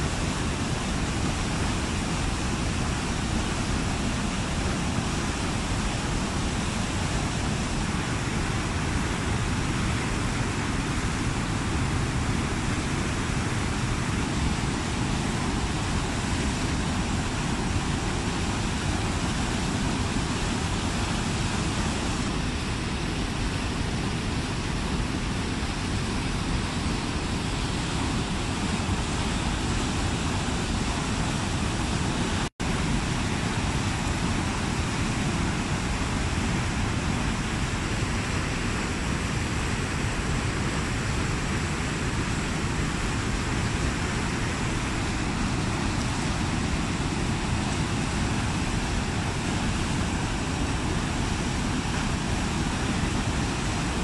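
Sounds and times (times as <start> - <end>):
waterfall rushing onto rocks: 0.0 - 54.0.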